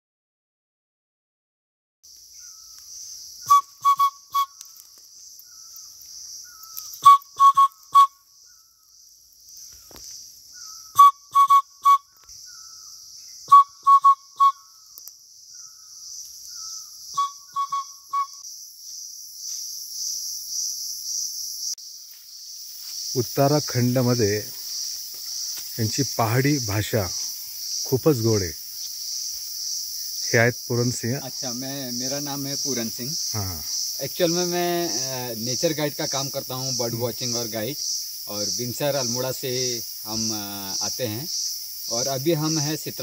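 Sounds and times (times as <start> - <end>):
high insect buzz: 2.1 - 43.0
man whistling bird call: 3.4 - 4.6, 6.6 - 8.2, 10.6 - 12.7, 13.4 - 14.8, 16.6 - 18.4.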